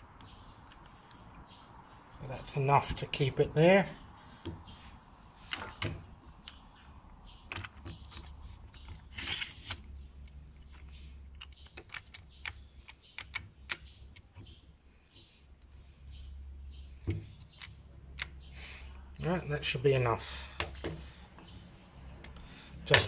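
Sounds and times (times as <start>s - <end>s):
scraping rustle: 8.1s - 9.9s.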